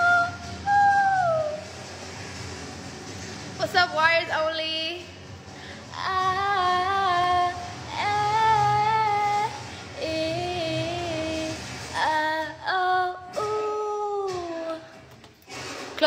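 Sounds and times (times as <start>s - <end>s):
singer breathing: 5.4s - 5.9s.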